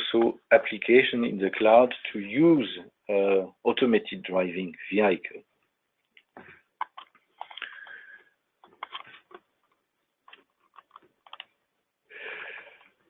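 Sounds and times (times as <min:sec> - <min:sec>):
faint irregular clicks: 0:05.6 - 0:11.7.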